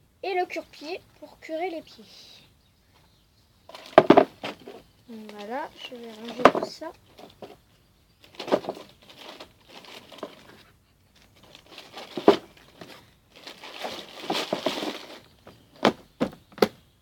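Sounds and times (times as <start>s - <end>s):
plastic bag rustling: 3.7s - 7.6s, 8.2s - 16.4s.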